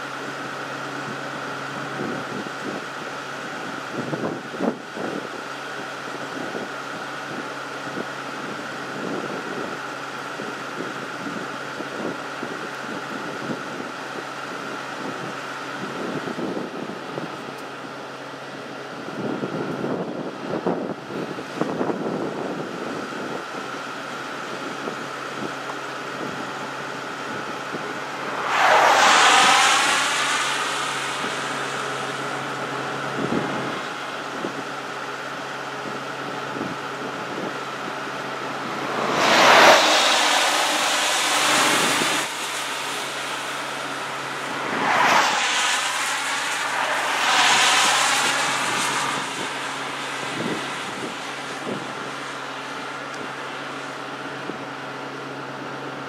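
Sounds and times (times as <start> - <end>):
cars passing by: 26.0 - 54.5.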